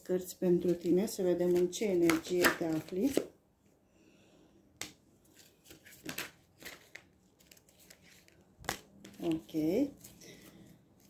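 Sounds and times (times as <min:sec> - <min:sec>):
cards snapping and rustling: 0:04.8 - 0:10.2.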